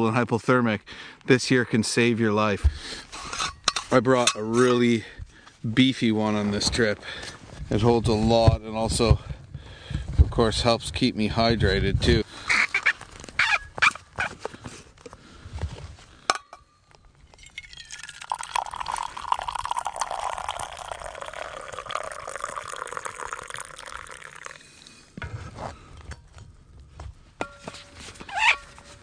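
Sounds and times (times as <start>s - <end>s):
hot drink pouring into cup: 17.3s - 25.1s.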